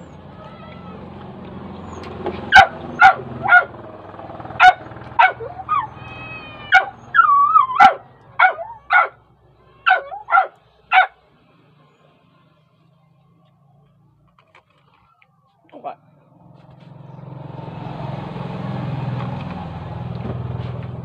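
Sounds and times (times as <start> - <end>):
dog whining: 1.8 - 3.7, 4.6 - 11.1
dog barking: 2.5 - 3.8, 4.6 - 6.0, 6.7 - 9.2, 9.8 - 11.2.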